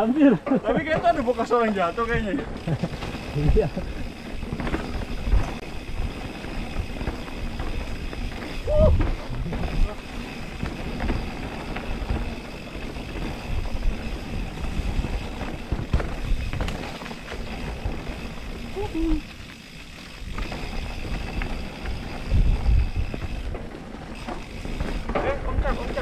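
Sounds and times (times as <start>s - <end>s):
bike rattling and knocking: 0.0s - 26.0s
bike squeak: 1.1s - 26.0s
wind rushing over microphone: 3.3s - 16.8s, 20.3s - 23.7s.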